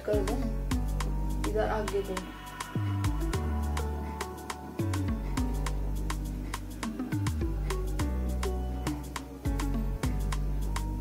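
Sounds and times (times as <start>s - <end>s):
slow mellow beat: 0.0s - 11.0s
deep sliding bass: 2.8s - 11.0s.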